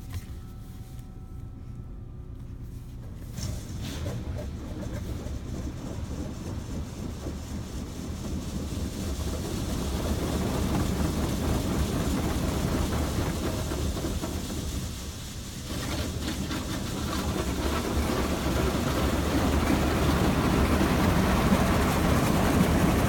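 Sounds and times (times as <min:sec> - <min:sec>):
car wash water and machinery: 0:00.0 - 0:23.0.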